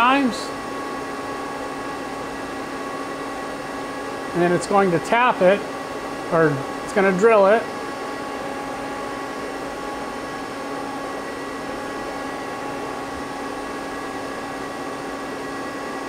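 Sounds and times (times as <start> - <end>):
idle lathe hum: 0.0 - 16.0.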